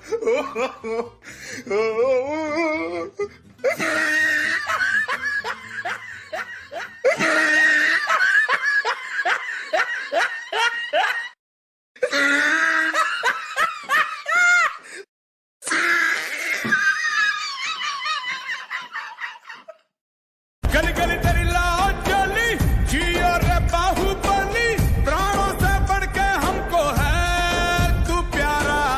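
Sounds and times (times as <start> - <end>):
loud laughter: 0.0 - 1.2, 3.6 - 11.4, 12.0 - 14.9, 15.7 - 19.9.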